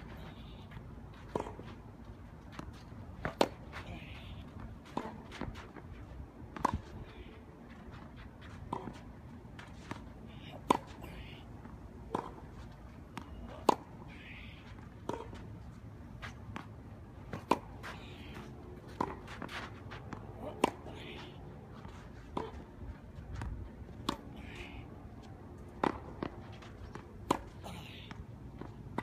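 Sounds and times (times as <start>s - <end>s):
tennis ball hit by racquet: 3.2s - 3.8s, 17.3s - 21.0s, 25.7s - 27.6s.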